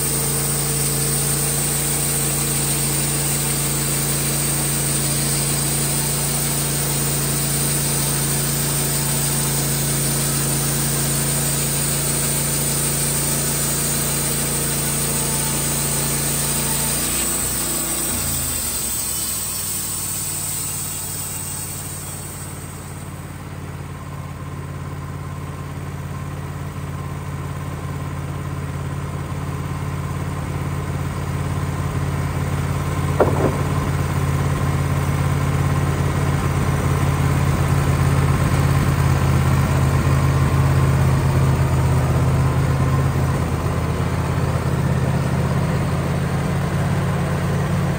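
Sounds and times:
band saw cutting log: 0.0s - 23.5s, 33.0s - 35.0s
sawmill engine running: 0.0s - 47.9s
short knock: 33.2s - 34.4s.

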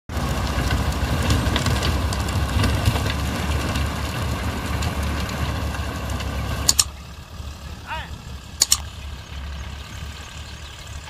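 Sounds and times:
tractor diesel engine under load: 0.1s - 11.0s
tiller clicks and knocks: 4.7s - 7.0s, 8.6s - 8.9s.

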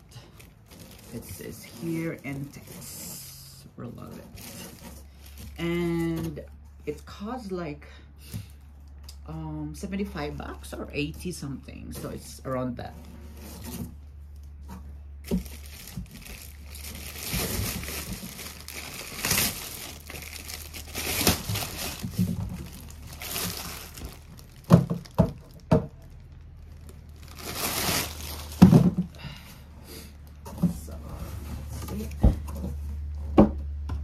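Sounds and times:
plastic wrapping crinkling: 0.0s - 3.2s, 4.0s - 6.4s, 11.9s - 29.3s.

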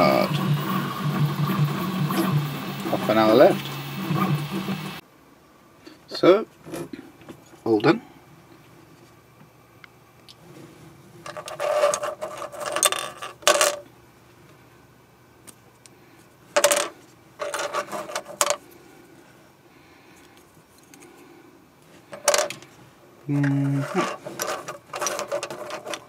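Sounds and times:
plastic clicking and scraping on metal: 23.8s - 26.0s.

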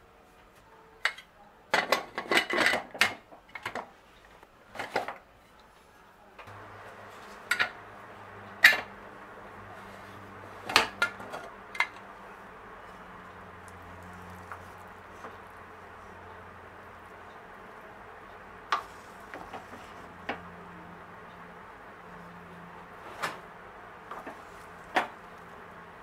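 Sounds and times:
steady low hum: 6.2s - 26.0s.

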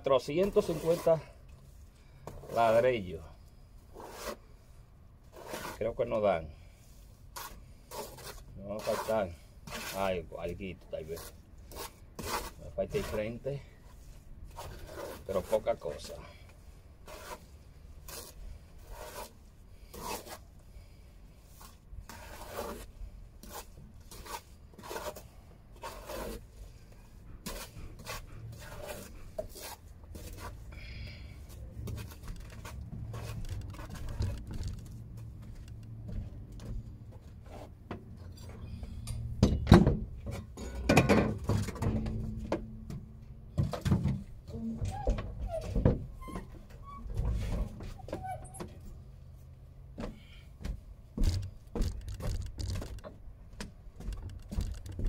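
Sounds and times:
trowel scraping mortar and bricks: 0.2s - 2.9s, 3.9s - 16.4s, 17.0s - 35.0s.

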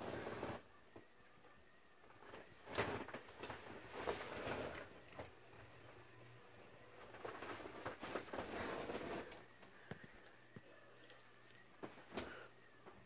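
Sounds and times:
ceiling fan running: 0.0s - 13.0s
rustling: 6.9s - 13.0s.

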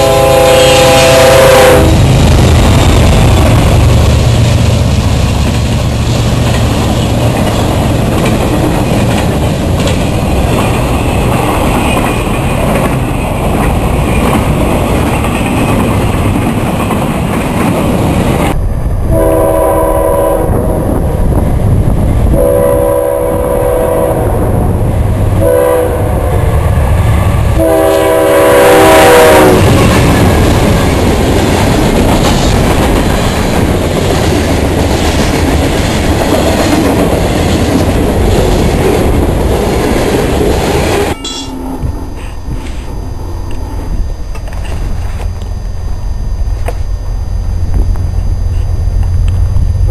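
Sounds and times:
locomotive air horn blasts: 0.0s - 2.0s, 19.1s - 20.8s, 22.3s - 24.4s, 25.4s - 26.4s, 27.6s - 29.7s
train wheels rumbling on rail: 0.0s - 49.9s.

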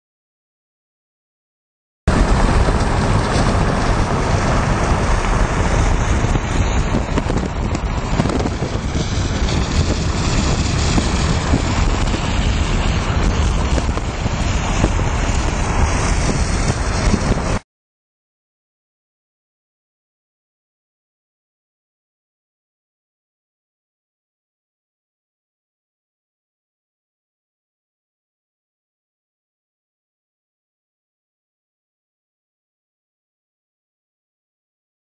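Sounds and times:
vehicle road noise: 2.1s - 17.6s
wind buffeting microphone: 2.1s - 17.6s.

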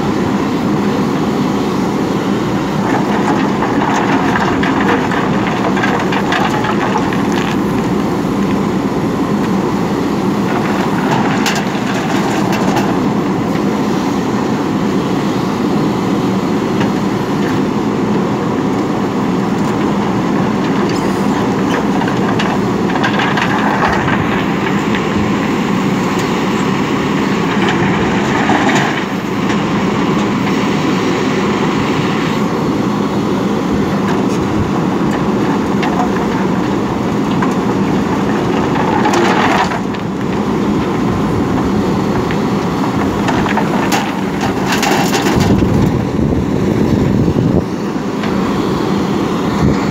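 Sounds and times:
diesel engine running under load: 0.0s - 49.9s
stones scraping and clattering: 2.8s - 8.6s, 19.6s - 25.2s, 34.0s - 46.0s.

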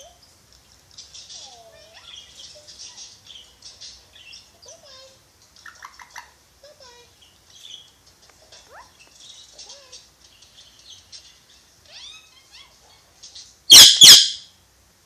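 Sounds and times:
parakeet chirps and whistles: 13.7s - 14.5s
parakeet harsh squawks: 13.7s - 14.5s.

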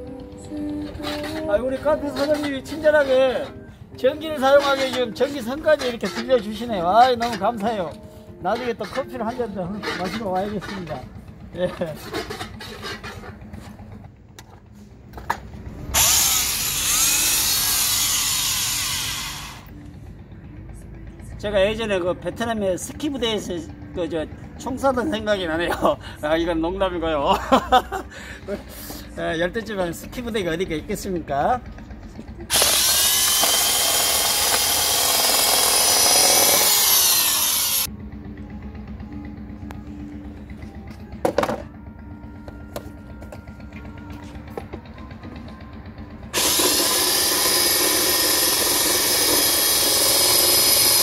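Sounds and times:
electric drill motor whine: 15.9s - 19.8s, 32.5s - 37.9s, 46.3s - 51.0s.

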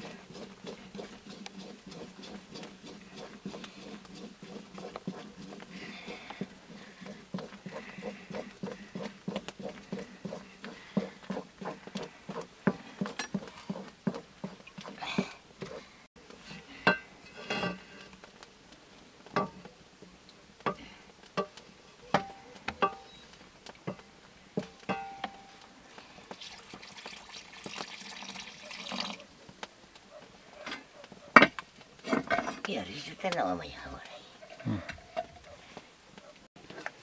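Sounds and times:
wooden spatula scraping a wok: 0.0s - 18.4s.

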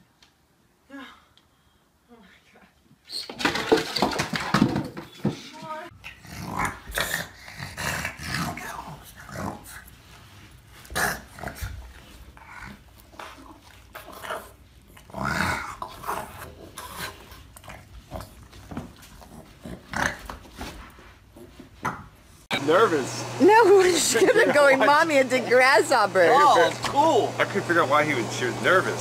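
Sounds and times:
dog grumbling: 6.1s - 9.7s.

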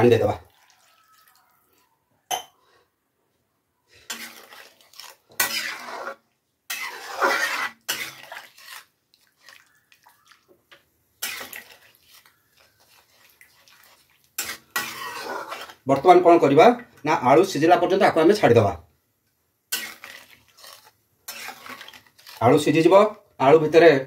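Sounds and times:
water pouring into metal pot: 0.0s - 1.4s
spoon stirring and knocking pot: 10.6s - 16.2s.

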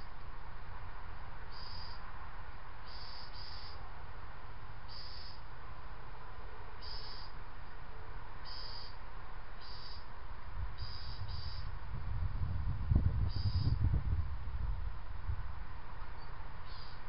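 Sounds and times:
cricket chirping: 1.5s - 2.1s, 2.8s - 3.9s, 4.8s - 5.5s, 6.8s - 7.4s, 8.4s - 9.0s, 9.6s - 10.1s, 10.8s - 11.7s, 13.2s - 13.8s, 16.1s - 17.0s.

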